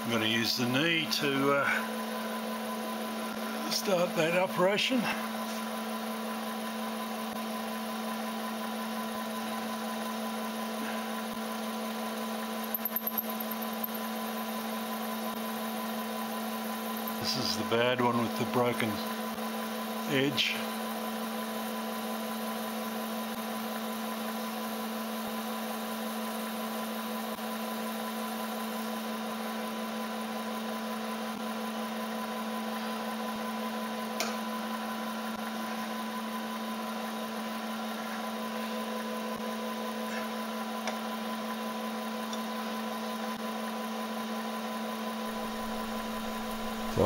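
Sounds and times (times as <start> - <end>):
milling machine running: 45.1 - 47.0.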